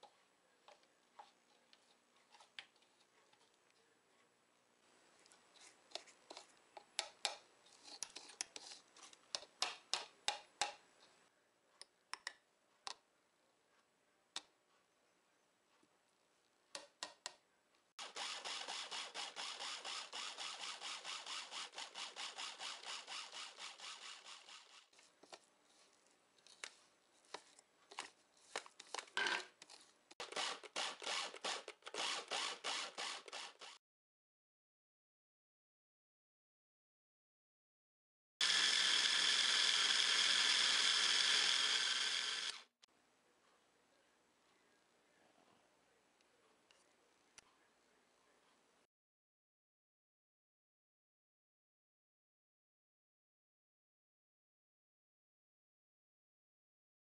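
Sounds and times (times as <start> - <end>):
food processor grinding seeds: 18.0 - 24.9, 30.2 - 33.8, 38.4 - 42.7.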